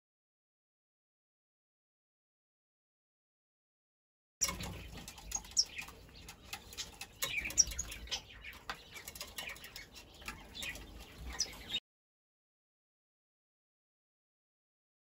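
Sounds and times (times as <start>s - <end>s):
chick chirping: 4.4s - 11.8s.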